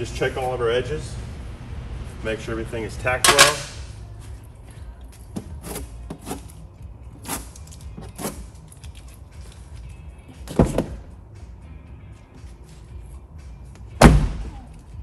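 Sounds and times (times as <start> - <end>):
low steady hum: 0.0 - 10.3.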